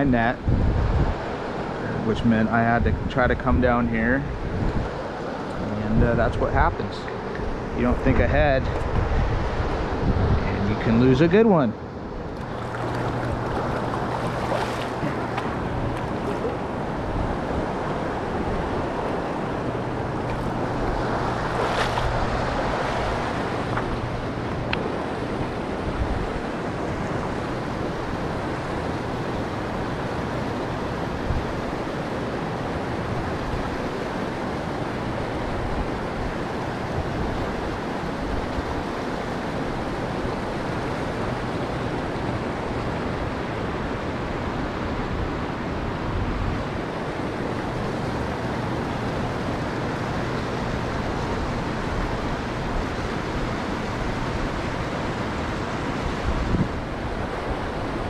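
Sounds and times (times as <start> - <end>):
river water rushing over rocks: 11.9 - 58.0.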